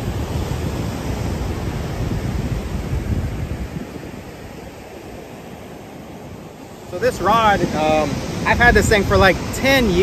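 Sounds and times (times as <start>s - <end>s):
ocean surf washing onto beach: 0.0s - 10.0s
wind buffeting microphone: 0.0s - 10.0s.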